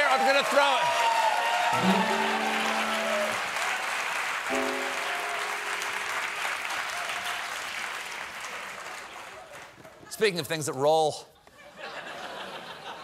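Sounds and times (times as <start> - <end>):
audience applauding: 0.0 - 10.0
band playing held chords: 1.8 - 3.6, 4.5 - 6.7.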